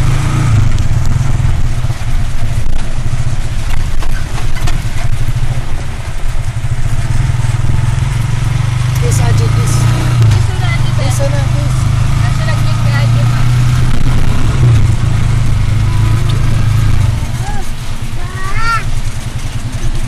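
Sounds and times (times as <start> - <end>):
road noise: 0.0 - 20.0
vehicle engine drone: 0.0 - 20.0
rattles and knocks: 0.8 - 8.4.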